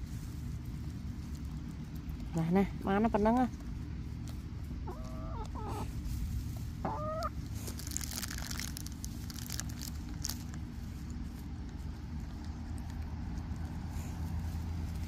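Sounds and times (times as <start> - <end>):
steady low rumble: 0.0 - 15.0
hens pecking clicks: 0.5 - 15.0
hens clucking: 4.6 - 7.6.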